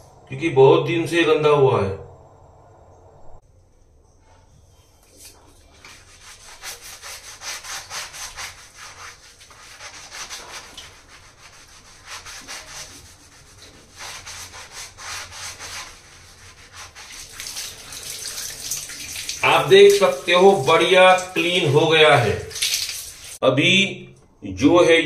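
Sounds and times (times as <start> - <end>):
scrubbing pad on wet ceramic: 5.0 - 23.4.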